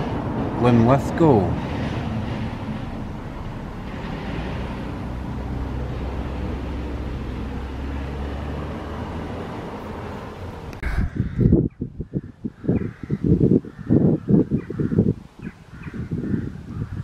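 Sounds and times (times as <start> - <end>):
boat engine humming: 0.0 - 10.8.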